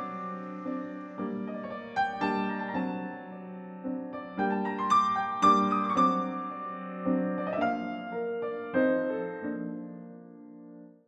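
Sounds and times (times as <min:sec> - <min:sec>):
gentle piano music: 0:00.0 - 0:11.0.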